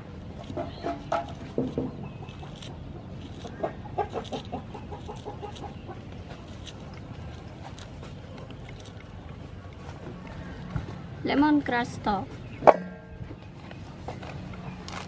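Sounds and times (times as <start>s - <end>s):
hen clucking: 0.0s - 10.5s
knife scraping peeling shallots: 0.2s - 9.3s, 14.6s - 15.0s.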